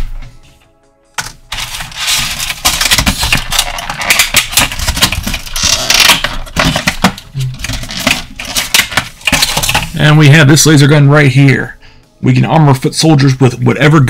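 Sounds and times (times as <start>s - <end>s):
plastic packaging crackling: 1.4s - 10.0s.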